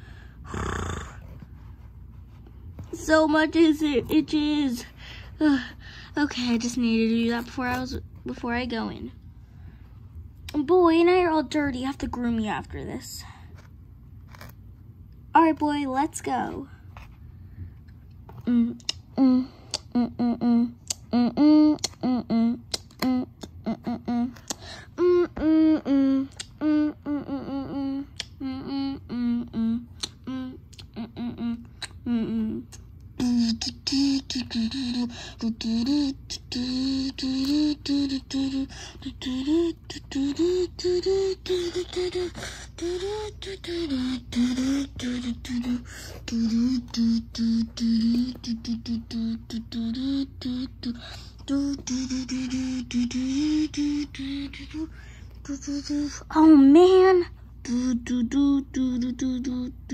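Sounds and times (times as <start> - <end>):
person humming a bouncy tune: 18.3 - 59.9.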